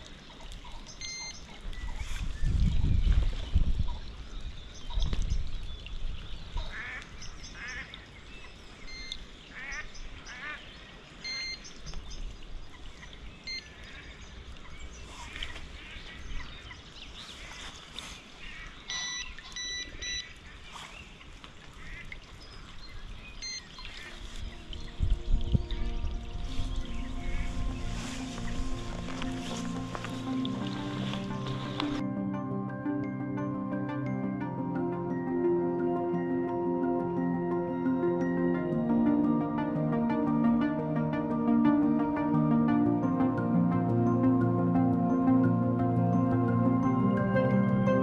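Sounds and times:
waterfowl calling: 0:00.2 - 0:02.2, 0:06.6 - 0:12.0, 0:18.4 - 0:20.6, 0:21.2 - 0:22.7, 0:26.7 - 0:32.0
bite alarm beeps: 0:01.0 - 0:01.4, 0:08.9 - 0:09.2, 0:11.2 - 0:11.6, 0:18.9 - 0:20.3, 0:23.4 - 0:23.7.

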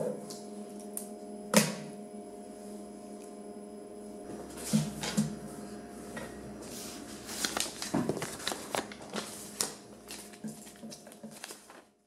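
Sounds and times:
steady electrical hum: 0:00.0 - 0:12.0.

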